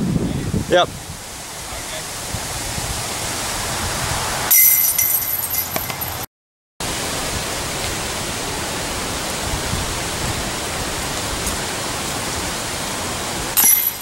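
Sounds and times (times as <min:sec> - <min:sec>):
wind rushing: 0:00.0 - 0:04.5.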